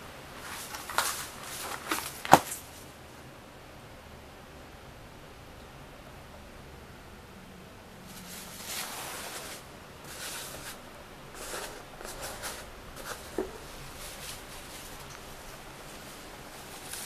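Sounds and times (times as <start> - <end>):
cat rustling and scraping on carpet: 8.1 - 17.0.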